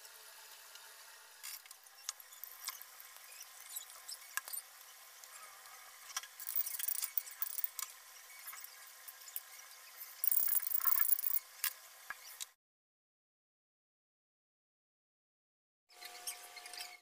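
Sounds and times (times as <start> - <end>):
spices crackling in hot oil: 6.1 - 12.2.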